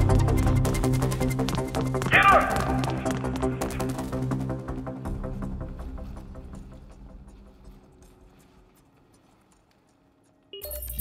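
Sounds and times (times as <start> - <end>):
loud electronic music swell: 0.0 - 7.3
quiet film score: 0.0 - 11.0.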